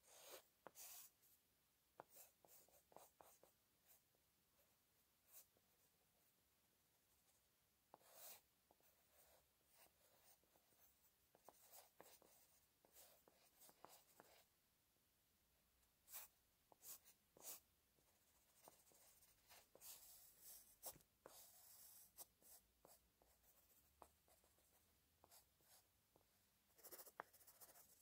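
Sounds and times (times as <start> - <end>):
pencil scratching on paper: 0.0 - 1.2, 2.0 - 3.6, 7.9 - 14.5, 16.1 - 25.8, 26.7 - 28.0.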